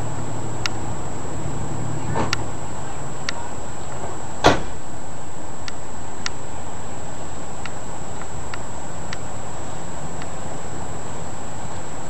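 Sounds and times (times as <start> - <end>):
faint high whine: 0.0 - 12.0
sharp knock: 4.4 - 4.8.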